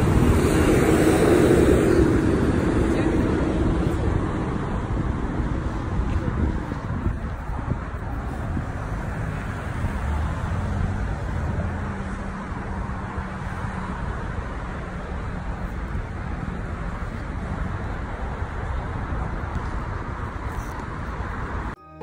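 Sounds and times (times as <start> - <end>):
passing vehicle engine hum: 0.0 - 21.8
road traffic noise: 0.0 - 22.0.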